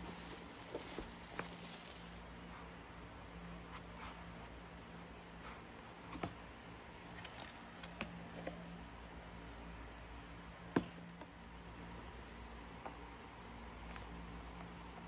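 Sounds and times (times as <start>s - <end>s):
hands handling cardboard box: 0.0s - 2.3s
faint steady hum: 0.0s - 15.0s.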